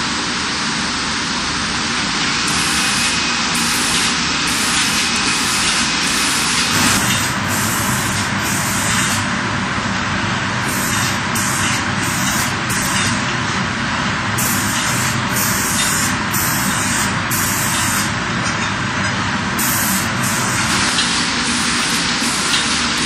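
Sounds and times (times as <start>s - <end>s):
robot spraying hiss: 2.5s - 9.2s, 10.6s - 13.1s, 14.4s - 18.1s, 19.6s - 23.0s.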